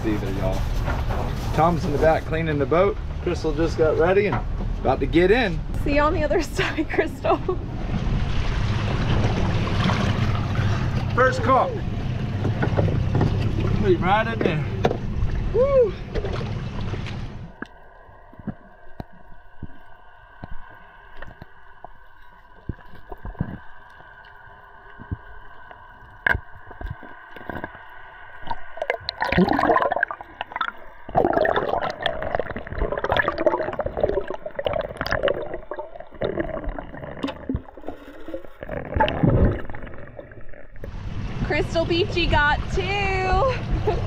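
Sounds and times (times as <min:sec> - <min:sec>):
underwater gurgling and churning: 0:00.0 - 0:44.0
faint steady whine: 0:10.2 - 0:44.0.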